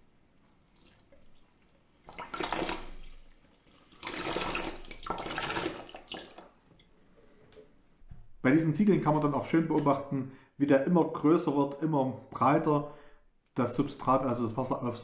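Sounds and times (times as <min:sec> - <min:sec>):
water splashing into plastic bucket: 0:02.0 - 0:06.9.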